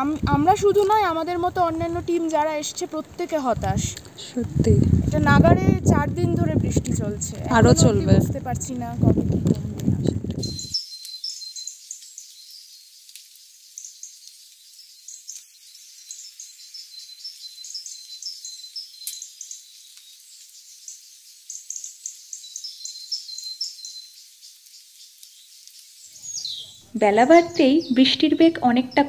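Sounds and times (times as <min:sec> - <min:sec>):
faint steady hiss: 0:00.0 - 0:29.0
rapid high-pitched chirping: 0:10.4 - 0:29.0.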